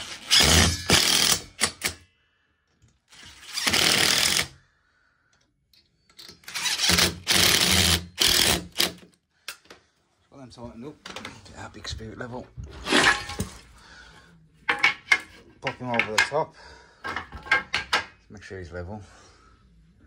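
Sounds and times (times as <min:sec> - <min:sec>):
cordless driver driving screws: 0:06.2 - 0:09.0.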